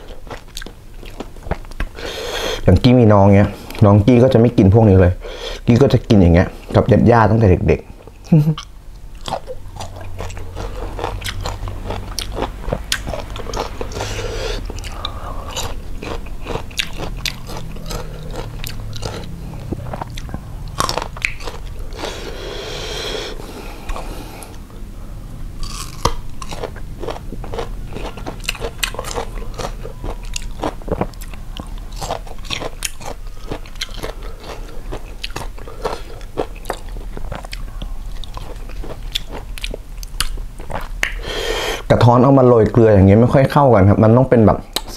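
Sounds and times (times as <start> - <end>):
crunchy mango chewing: 0.0 - 2.0, 8.6 - 24.6, 25.6 - 41.2.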